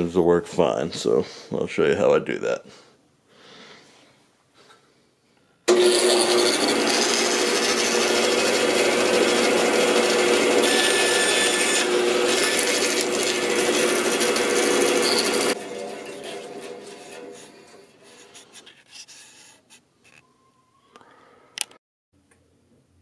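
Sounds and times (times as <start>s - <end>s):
bandsaw cutting wood: 5.7s - 19.5s.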